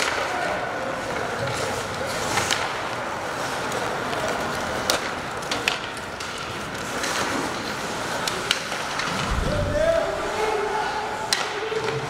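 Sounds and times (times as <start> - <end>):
skating and arena noise: 0.0 - 12.0
hockey sticks and puck clacking: 2.3 - 8.7.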